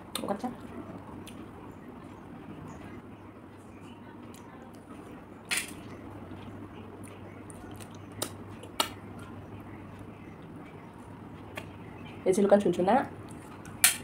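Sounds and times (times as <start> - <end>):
sharp eating clicks and smacks: 6.4 - 10.8, 11.4 - 11.8.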